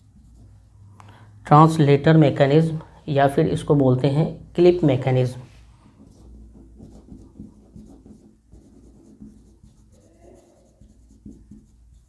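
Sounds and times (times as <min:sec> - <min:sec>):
pen scratching on paper: 0:05.7 - 0:12.0.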